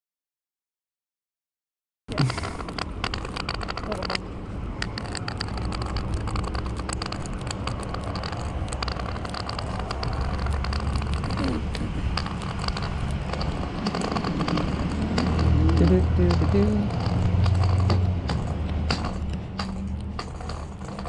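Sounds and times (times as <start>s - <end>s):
low steady rumble: 2.1s - 21.0s
cane tip tapping on asphalt: 4.8s - 21.0s.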